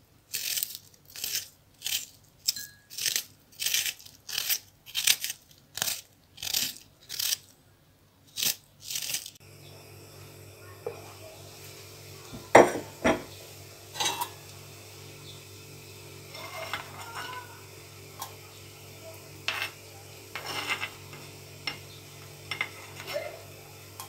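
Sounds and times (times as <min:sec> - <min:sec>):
metal spoon clinking on pot: 0:02.5 - 0:03.0, 0:14.0 - 0:14.4, 0:19.5 - 0:23.2
steady low hum: 0:09.4 - 0:24.0.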